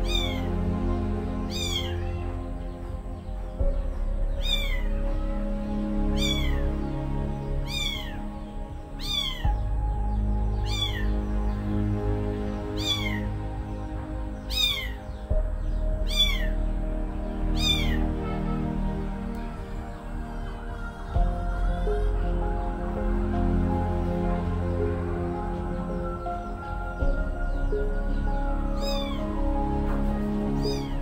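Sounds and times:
background music: 0.0 - 31.0
kitten mewing: 1.5 - 2.2, 9.0 - 9.4, 10.7 - 11.0, 17.6 - 18.0.

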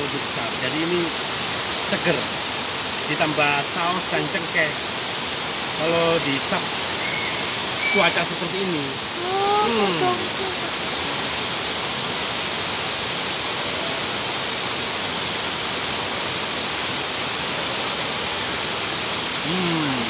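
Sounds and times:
waterfall rushing: 0.0 - 20.0
brief voice: 9.2 - 10.8, 19.4 - 20.0.

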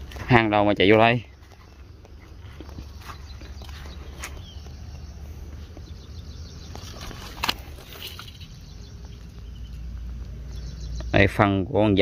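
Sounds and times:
footsteps in dry scrub: 0.0 - 11.1
sharp crack: 6.6 - 9.4
brush rustling: 6.7 - 10.4.

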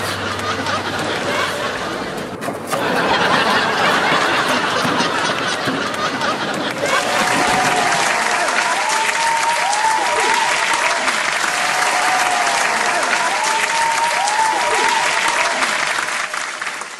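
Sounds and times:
audience applause: 0.0 - 16.9.

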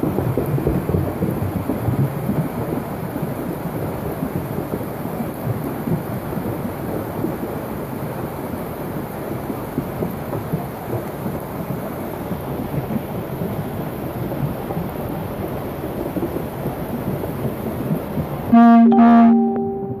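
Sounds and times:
heavy rainstorm: 0.0 - 20.0
music with loud held note: 18.5 - 20.0.

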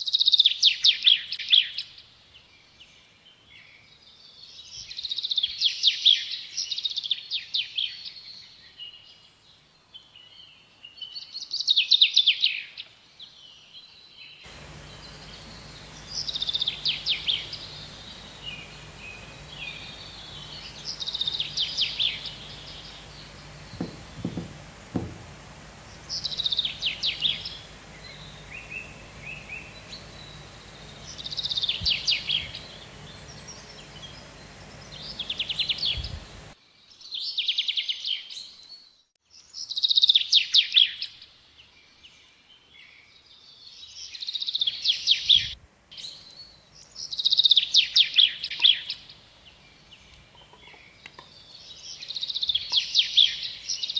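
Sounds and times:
low steady hum: 14.5 - 36.6.

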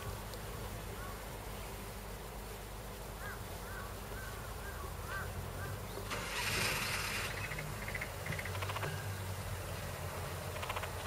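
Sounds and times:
low engine drone: 4.2 - 11.0
noisy burst: 6.0 - 9.6
frogs chirping: 6.8 - 9.3.

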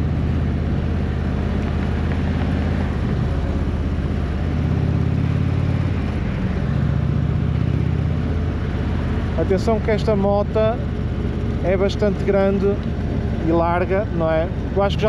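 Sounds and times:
motorcycle engine revving: 0.0 - 15.0
wind and road noise: 0.0 - 15.0.

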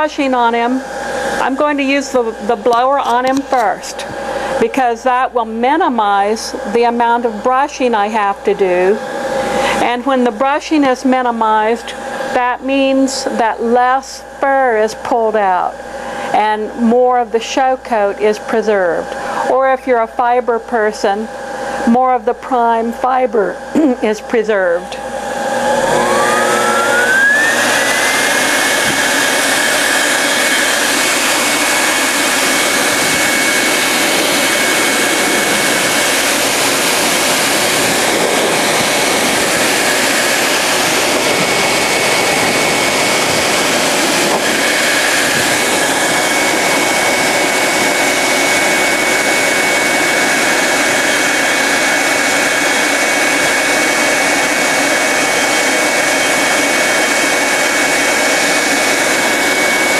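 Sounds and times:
grooming blower whining: 0.0 - 16.8, 17.9 - 19.7, 20.7 - 59.9.

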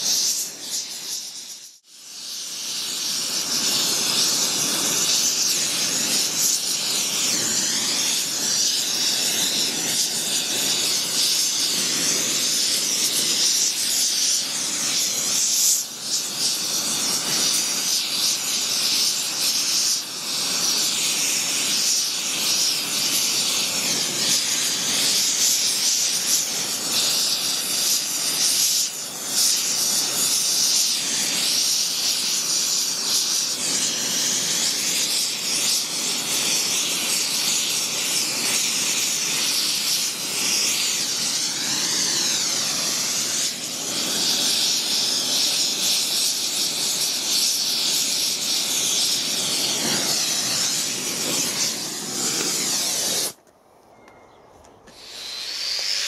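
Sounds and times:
torch flame hissing: 0.0 - 53.4, 54.9 - 56.0.

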